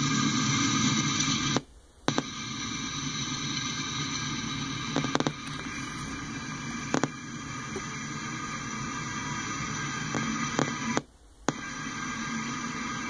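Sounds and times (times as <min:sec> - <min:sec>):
freight train rolling: 0:02.6 - 0:10.9.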